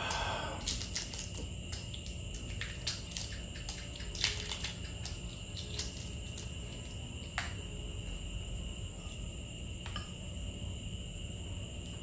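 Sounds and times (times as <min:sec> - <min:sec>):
eggshell crackling while peeled: 0:00.0 - 0:07.7
low room hum: 0:00.0 - 0:12.0.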